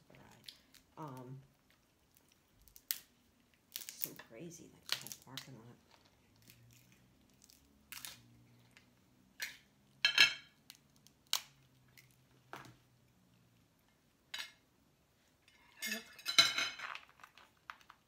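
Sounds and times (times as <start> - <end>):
crab shells cracking: 0.2 - 9.7, 10.5 - 12.7, 16.7 - 18.0.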